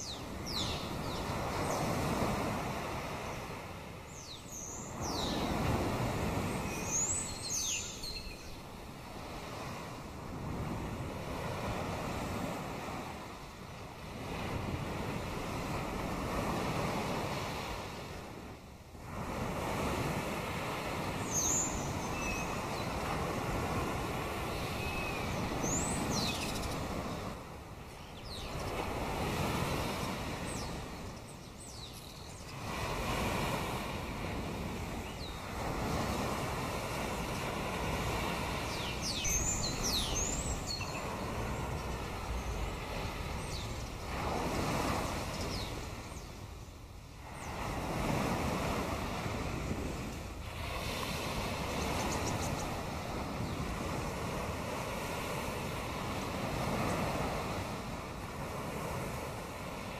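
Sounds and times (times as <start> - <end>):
birds chirping: 0.0 - 2.1, 3.2 - 5.7, 6.3 - 8.8, 21.2 - 23.6, 24.2 - 27.2, 27.9 - 32.8, 34.9 - 36.4, 37.1 - 46.8, 51.5 - 53.8
sea waves washing in: 0.0 - 59.9.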